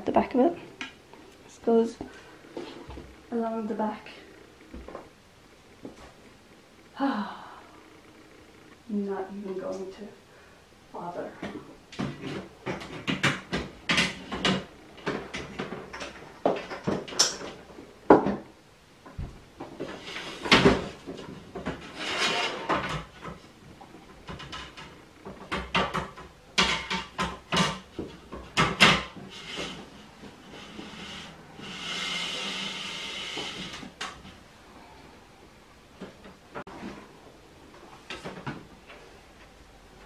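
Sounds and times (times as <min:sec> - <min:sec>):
metal shelving knocks and scrapes: 0:19.2 - 0:23.4.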